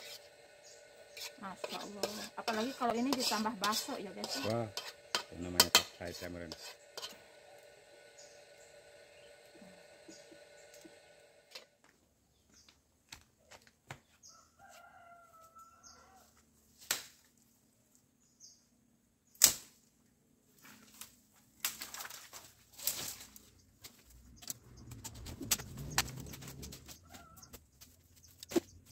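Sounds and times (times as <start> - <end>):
hoe striking soil: 1.2 - 7.2, 28.4 - 28.9.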